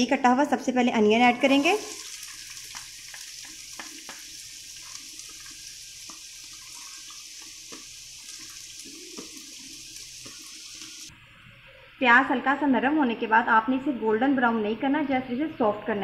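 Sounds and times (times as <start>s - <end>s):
onion sizzling in hot oil: 0.6s - 11.1s.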